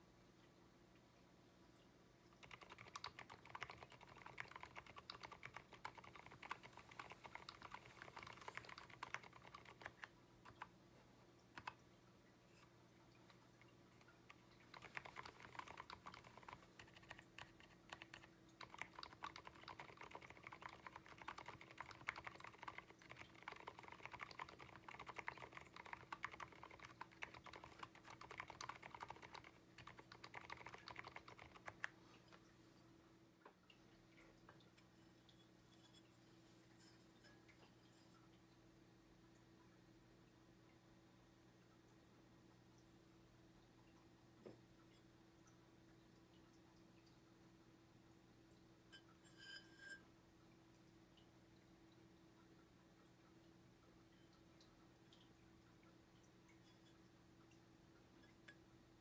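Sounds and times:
soft keyboard typing: 2.3 - 10.8, 11.4 - 11.8, 12.5 - 32.5.

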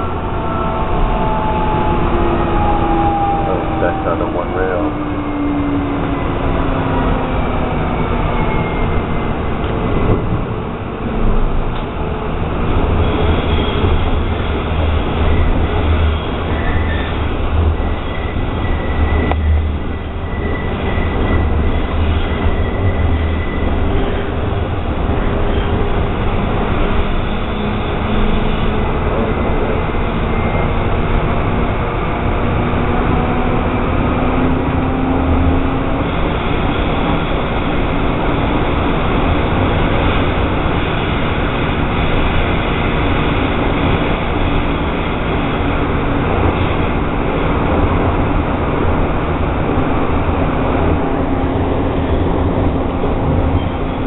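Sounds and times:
humming tone rising in pitch: 0.0 - 7.3
train wheels rumbling: 0.0 - 54.0.

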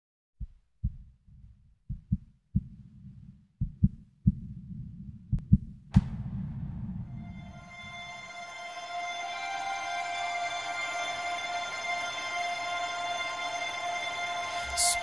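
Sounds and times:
heartbeat thumps: 0.4 - 7.4.

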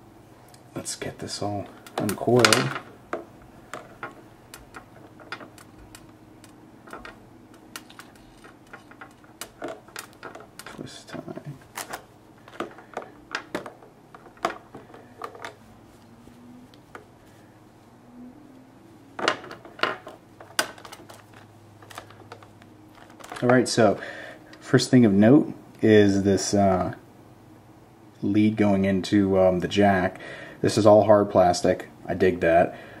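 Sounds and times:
headphone cable clicking: 3.8 - 15.6.

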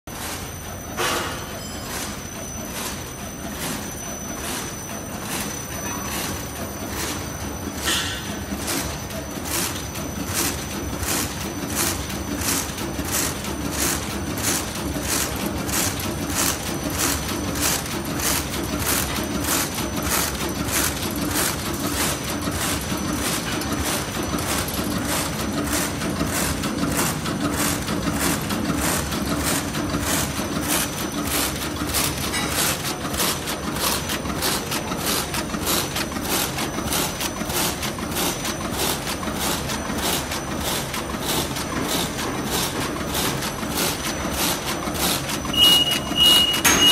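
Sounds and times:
cutter knocking rhythmically: 1.0 - 46.9.

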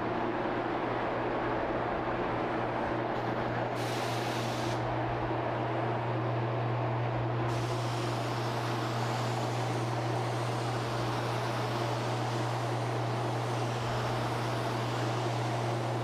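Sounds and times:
spray gun hissing: 3.8 - 4.9, 7.5 - 16.0.

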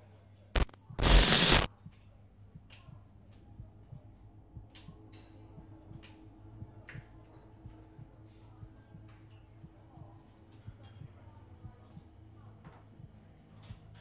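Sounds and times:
brief crackle: 0.6 - 1.7
burst of harsh noise: 0.6 - 1.7
low hum: 0.6 - 1.7.

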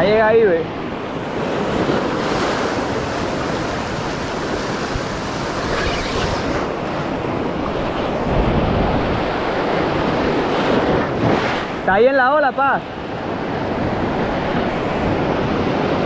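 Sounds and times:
surf washing over rocks: 0.0 - 16.0
wind buffeting microphone: 0.8 - 11.8.

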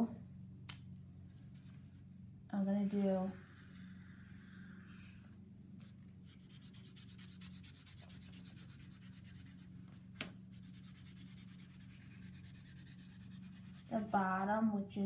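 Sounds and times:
steady low hum: 0.0 - 15.0
marker scratching on paper towel: 3.0 - 5.1, 6.3 - 9.7, 10.5 - 14.5.

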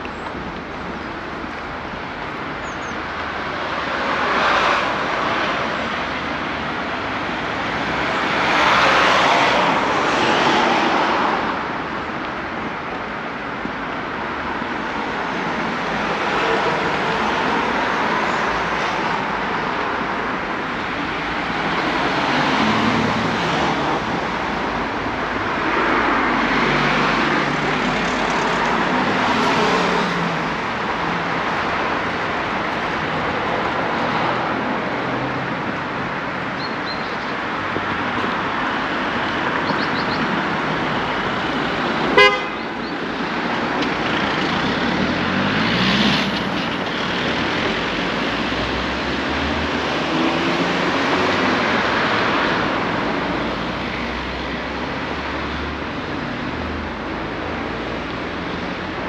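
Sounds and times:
road traffic: 0.0 - 59.0
car horn toot: 42.2 - 42.7.

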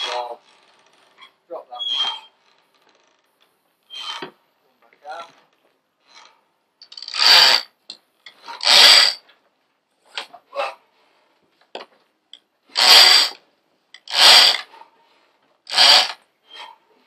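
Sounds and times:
rope sliding over winch drum: 3.9 - 4.4, 6.1 - 7.7, 8.3 - 9.3, 12.7 - 13.4, 14.0 - 14.9, 15.7 - 16.8.

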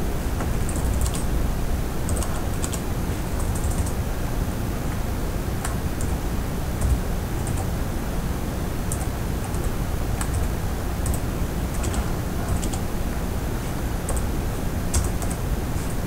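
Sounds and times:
low background noise: 0.0 - 16.0
keyboard typing: 0.7 - 1.2, 2.1 - 2.8, 3.4 - 4.0, 8.9 - 12.8, 14.1 - 14.3, 14.9 - 15.4.

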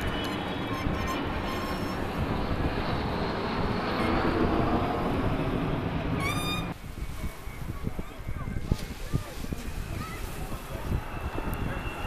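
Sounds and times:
jet engine roar: 0.0 - 12.0
rising jet whine: 1.2 - 8.5.

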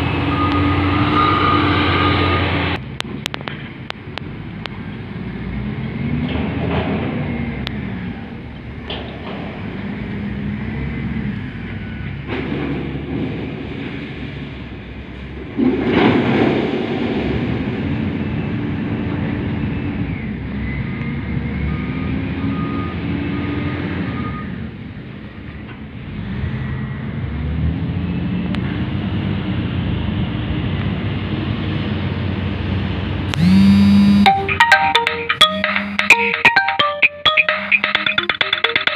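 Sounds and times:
diesel engine revving: 0.0 - 14.8, 26.0 - 34.6
high beeping: 33.3 - 38.9.

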